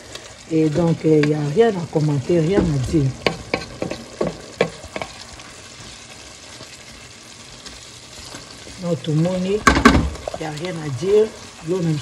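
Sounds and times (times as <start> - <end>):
leaves sizzling in a pot: 0.0 - 12.0
wooden spatula knocking pot: 2.5 - 5.1.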